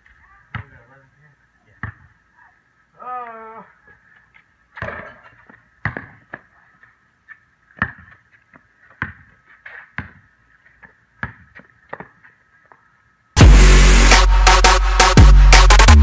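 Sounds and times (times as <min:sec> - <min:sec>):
basketball bouncing on concrete: 0:00.5 - 0:00.9, 0:01.7 - 0:02.1, 0:04.8 - 0:06.6, 0:07.7 - 0:12.8
person shouting: 0:03.0 - 0:03.8.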